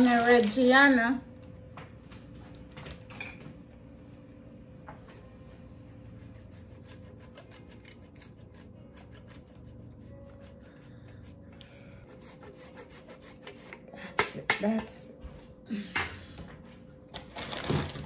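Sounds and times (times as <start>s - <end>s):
cheese grating on metal grater: 6.2s - 10.7s, 12.0s - 13.8s.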